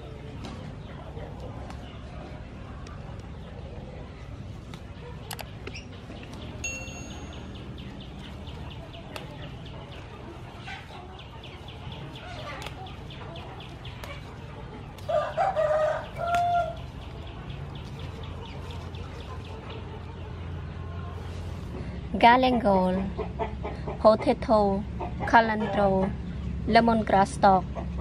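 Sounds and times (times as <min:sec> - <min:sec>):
rooster crowing: 0:15.1 - 0:16.8.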